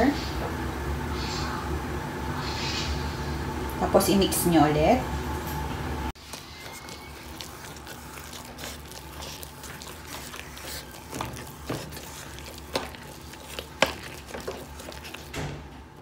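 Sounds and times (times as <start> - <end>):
potato masher mashing potatoes: 6.2 - 15.6.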